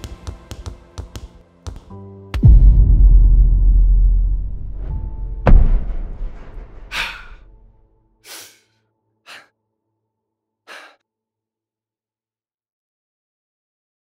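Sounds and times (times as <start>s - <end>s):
low music tone: 1.9s - 8.1s
man breathing hard: 6.9s - 7.5s, 8.2s - 8.7s, 9.3s - 9.5s, 10.7s - 11.0s.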